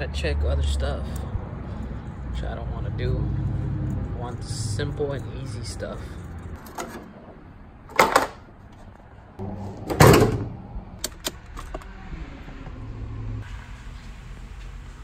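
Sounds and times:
car hood slamming: 9.9 - 10.5.

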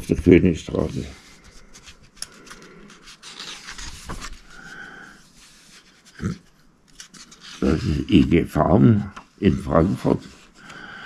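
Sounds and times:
book pages turning: 0.0 - 8.3.

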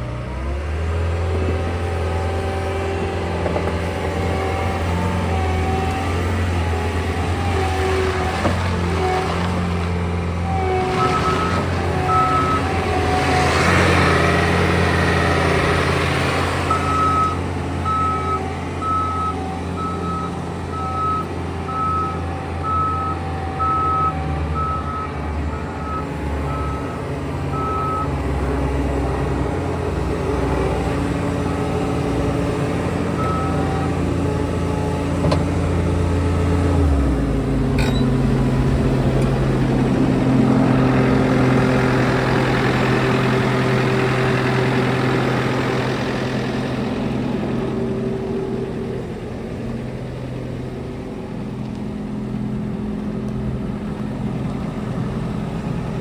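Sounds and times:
loader diesel engine running: 0.0 - 56.0.

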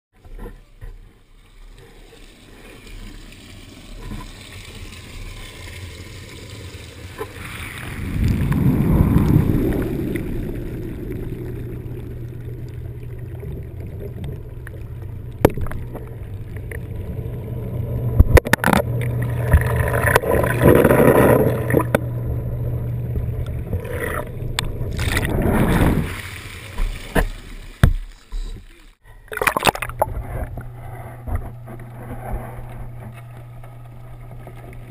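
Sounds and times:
muffled water churning and sloshing: 0.1 - 34.9
steady low hum: 0.2 - 27.6, 28.2 - 34.9.

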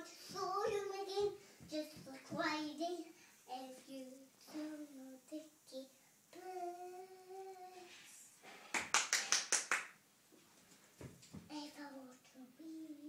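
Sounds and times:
girl singing: 0.0 - 8.2, 11.4 - 13.0
hand claps: 8.6 - 10.0.

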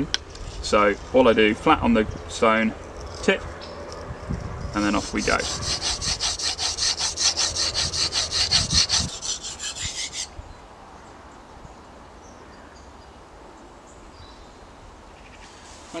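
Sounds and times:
faint outdoor background: 0.0 - 16.0
knife scraping on sharpening stone: 4.9 - 10.3.

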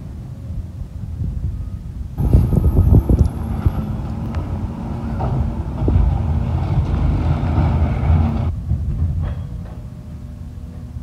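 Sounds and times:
hydraulics running: 2.2 - 8.5
garbage truck engine: 2.2 - 9.2.

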